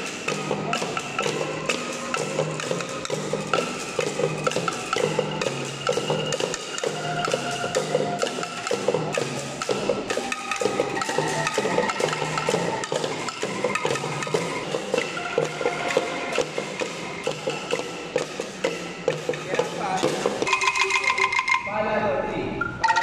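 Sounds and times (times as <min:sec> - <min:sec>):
sticks striking bamboo tubes: 0:00.0 - 0:21.7, 0:22.6 - 0:23.0
shaken bamboo rattle: 0:19.3 - 0:21.7, 0:22.8 - 0:23.0.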